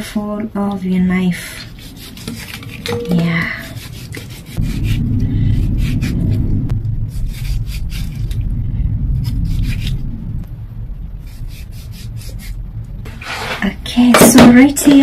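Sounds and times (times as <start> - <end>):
low steady rumble: 4.2 - 15.0.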